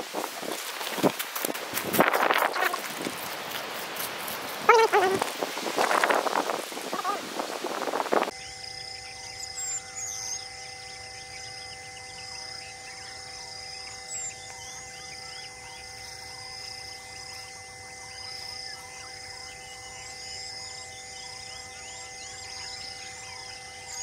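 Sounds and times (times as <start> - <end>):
insects buzzing: 0.0 - 24.0
faint steady held tones: 8.3 - 24.0.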